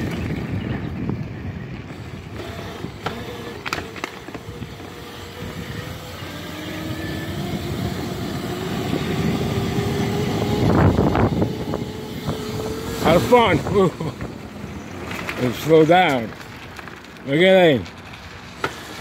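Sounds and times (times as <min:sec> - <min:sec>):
electric motor and chain whine: 0:00.0 - 0:19.0
tyre rumble on gravel: 0:14.9 - 0:19.0.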